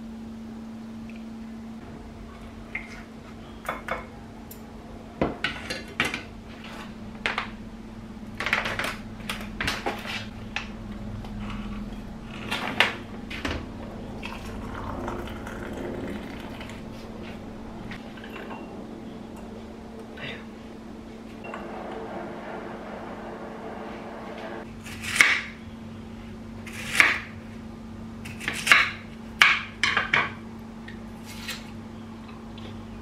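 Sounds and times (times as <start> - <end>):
steady low hum: 0.0 - 33.0
hot water pouring into teapot: 14.2 - 17.2
crockery and glass clinking: 18.2 - 18.7.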